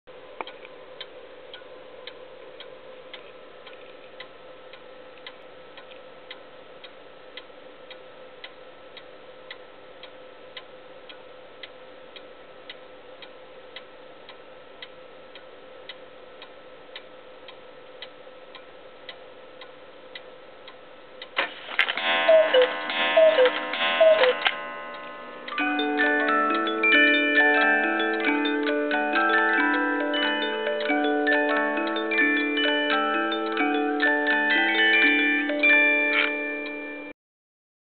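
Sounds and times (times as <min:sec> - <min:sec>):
clock ticking: 0:00.4 - 0:37.1
clock mechanism whirring: 0:16.4 - 0:37.0
cuckoo calls: 0:22.2 - 0:24.6.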